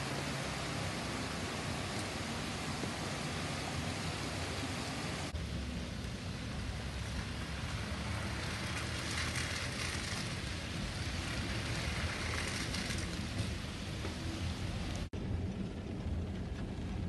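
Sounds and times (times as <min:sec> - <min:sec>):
floodwater rushing: 0:00.0 - 0:05.4
rain: 0:00.0 - 0:17.0.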